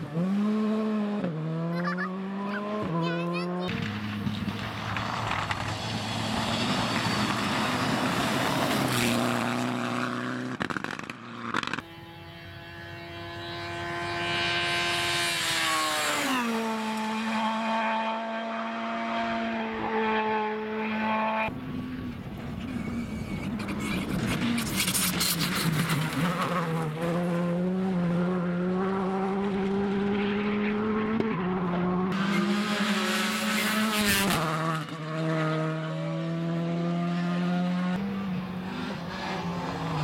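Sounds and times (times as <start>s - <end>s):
rally car engine at high revs: 0.0s - 40.0s
road noise: 0.0s - 40.0s
sharp cracks: 10.5s - 11.8s.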